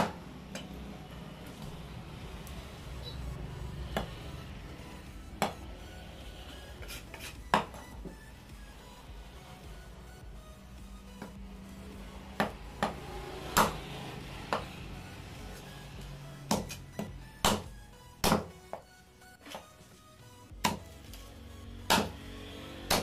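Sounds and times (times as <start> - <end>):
background music: 0.0 - 23.0
knife chopping on wooden block: 13.6 - 13.8, 16.5 - 16.8, 17.4 - 18.5, 20.6 - 20.8, 21.9 - 22.2.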